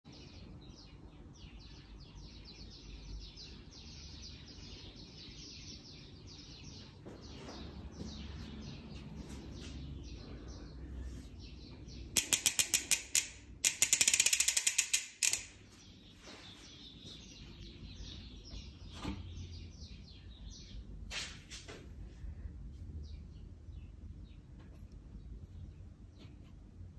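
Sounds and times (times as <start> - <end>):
bicycle hub freewheel clicking: 12.2 - 15.5.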